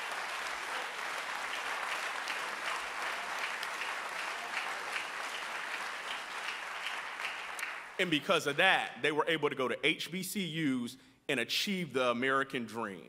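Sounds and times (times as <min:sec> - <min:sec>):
congregation applauding: 0:00.0 - 0:08.3.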